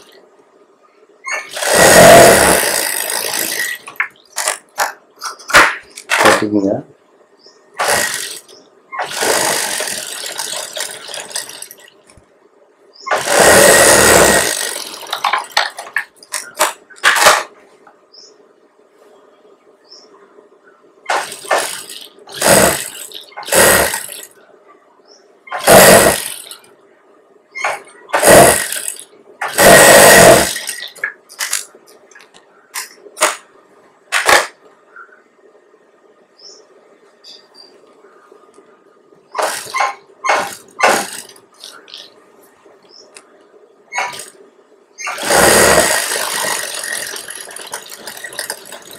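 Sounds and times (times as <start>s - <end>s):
faint machine hum: 0.0s - 48.9s
sewing machine stitching: 1.3s - 5.0s, 7.8s - 12.0s, 13.1s - 17.5s, 21.1s - 24.3s, 25.5s - 26.6s, 27.6s - 31.7s, 39.4s - 42.1s, 44.0s - 44.3s, 45.0s - 48.9s.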